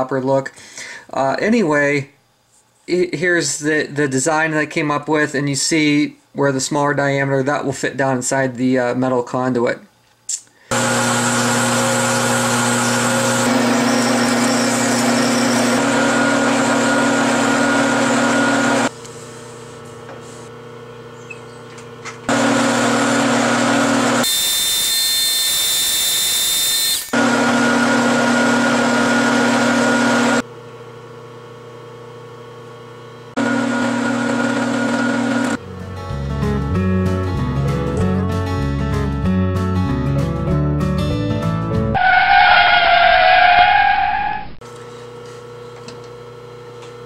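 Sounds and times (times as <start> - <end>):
metal lathe cutting: 10.8 - 18.9, 22.3 - 30.4
high whine: 42.0 - 44.6.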